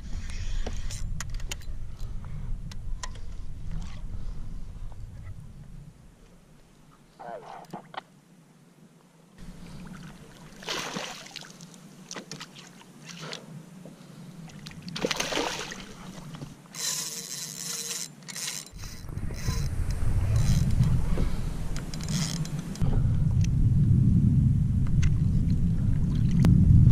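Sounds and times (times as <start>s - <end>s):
water splashing beside kayak: 9.4s - 22.8s
low rumble: 18.8s - 26.9s.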